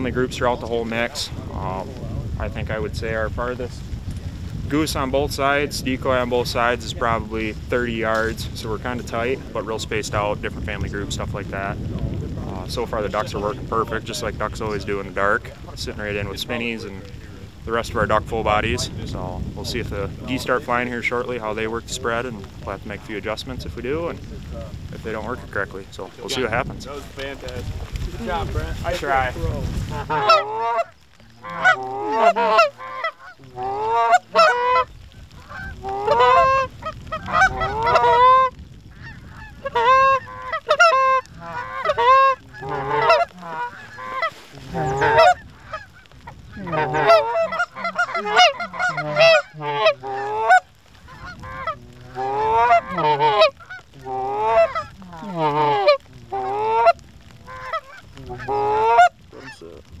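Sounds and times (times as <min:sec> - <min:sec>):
goose call honks and clucks: 0:29.8 - 0:59.6.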